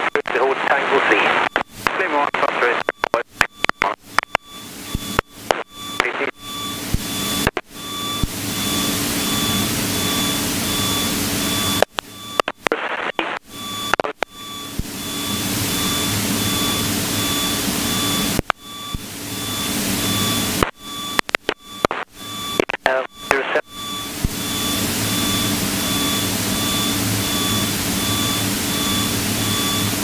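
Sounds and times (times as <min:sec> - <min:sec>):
aircraft cabin noise via intercom: 0:00.0 - 0:06.6, 0:20.5 - 0:24.3
faint pulsing beep: 0:00.0 - 0:30.0.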